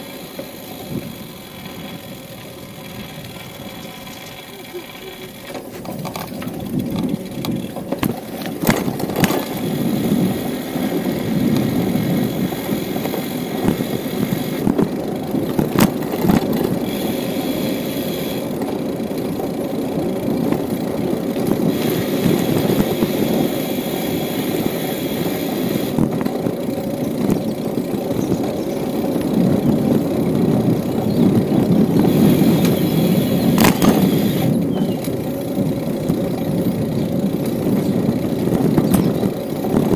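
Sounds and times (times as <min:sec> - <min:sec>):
bicycle tyres rolling: 0:00.0 - 0:39.9
wind buffeting microphone: 0:00.8 - 0:04.3, 0:05.6 - 0:39.9
sharp knocks from bike: 0:05.5 - 0:09.6, 0:33.4 - 0:34.1.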